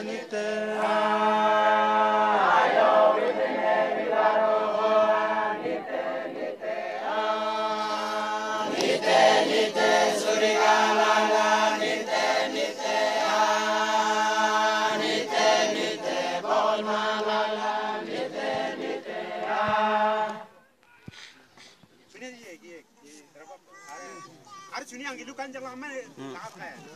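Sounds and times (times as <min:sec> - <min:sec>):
men singing a cappella hymn: 0:00.0 - 0:20.5.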